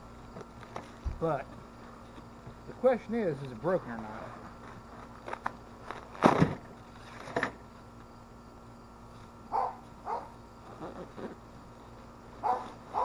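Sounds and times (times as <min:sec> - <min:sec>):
dog barking: 0:09.5 - 0:10.4, 0:12.4 - 0:13.0.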